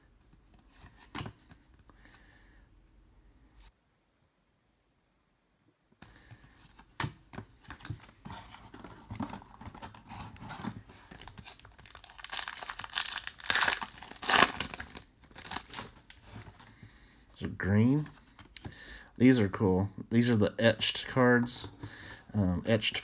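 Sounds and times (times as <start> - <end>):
card pack wrapper crinkling and tearing: 10.6 - 16.2.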